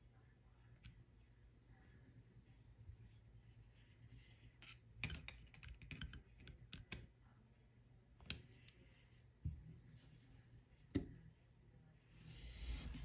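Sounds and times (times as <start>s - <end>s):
small metal clicks and taps: 4.6s - 7.1s.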